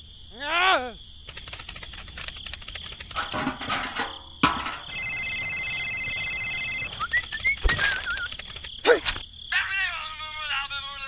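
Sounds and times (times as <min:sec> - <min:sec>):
rising whistled chirps: 0:06.8 - 0:08.4
wavering whistle: 0:06.9 - 0:08.3.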